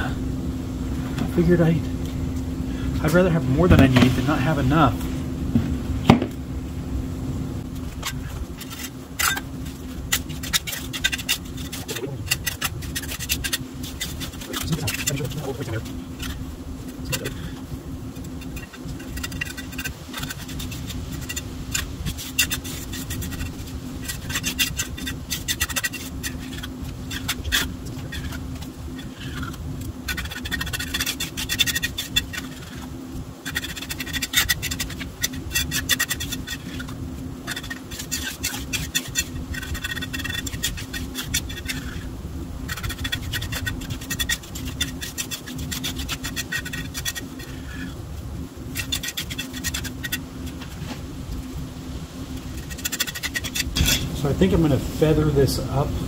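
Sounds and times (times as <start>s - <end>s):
steady low hum: 0.0s - 56.0s
trowel scraping wet concrete: 3.0s - 4.9s, 8.0s - 17.5s, 18.2s - 42.1s, 42.7s - 48.0s, 48.7s - 50.9s, 52.5s - 54.8s.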